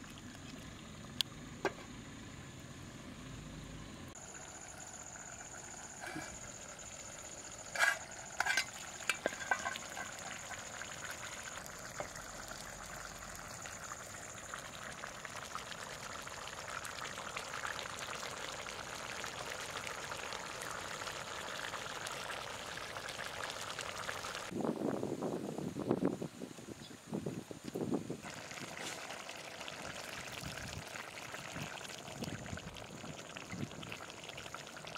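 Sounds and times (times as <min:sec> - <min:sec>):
curry bubbling in a pot: 0:04.2 - 0:24.5, 0:28.2 - 0:34.9
wood fire crackling: 0:05.6 - 0:13.6.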